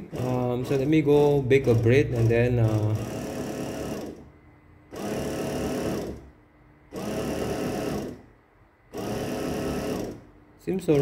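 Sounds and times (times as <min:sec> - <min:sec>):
bread maker motor whirring: 0:00.0 - 0:04.3, 0:04.9 - 0:06.3, 0:06.9 - 0:08.3, 0:08.9 - 0:11.0.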